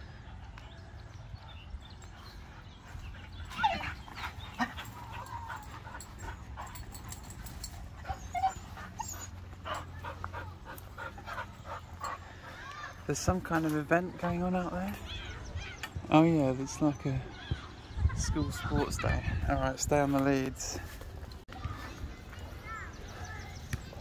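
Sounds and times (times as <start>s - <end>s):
dogs whining: 2.0s - 13.0s.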